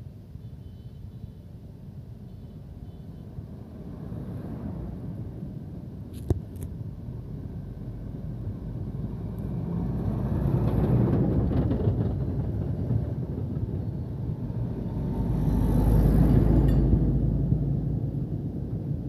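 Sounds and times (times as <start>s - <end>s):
trucks driving past: 3.5s - 6.0s, 7.0s - 19.0s.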